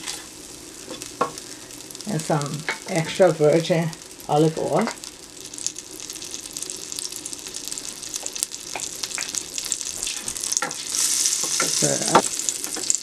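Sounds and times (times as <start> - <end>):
butter and oil sizzling in a pot: 0.0 - 13.0.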